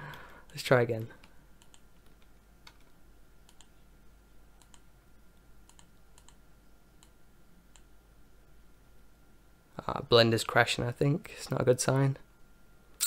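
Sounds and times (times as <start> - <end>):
faint high hum: 0.0 - 13.0
computer mouse clicks: 1.2 - 3.8, 4.6 - 4.9, 5.6 - 6.4, 7.0 - 7.9.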